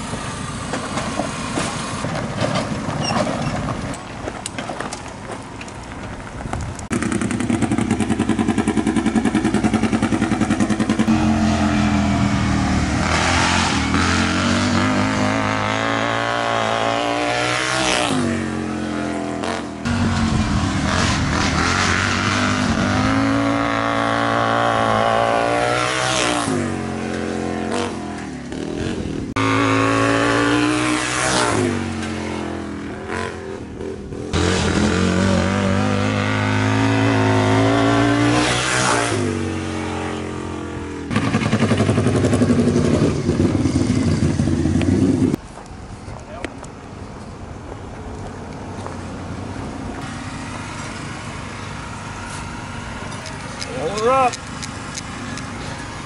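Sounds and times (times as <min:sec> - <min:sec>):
small engine revving: 0:06.9 - 0:45.4.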